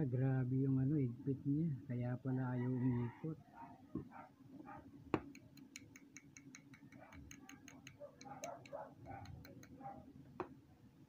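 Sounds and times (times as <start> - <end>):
seized bearing clicking rapidly: 5.3 - 9.8.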